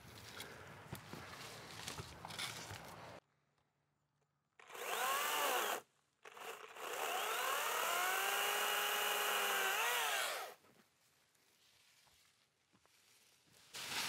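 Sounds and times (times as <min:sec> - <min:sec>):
chainsaw motor whine: 0:04.6 - 0:10.6.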